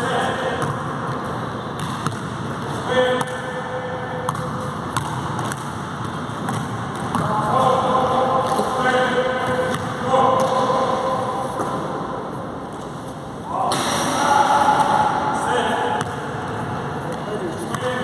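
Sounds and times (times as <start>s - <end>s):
basketball bouncing on court floor: 1.8s - 2.4s, 4.2s - 7.4s, 9.6s - 10.7s.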